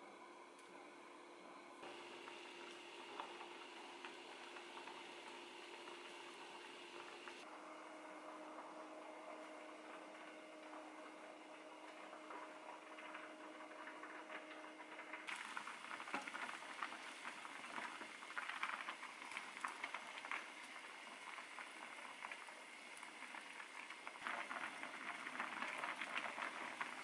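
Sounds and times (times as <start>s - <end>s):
broth boiling and bubbling: 0.0s - 27.0s
faint steady hum: 0.0s - 27.0s.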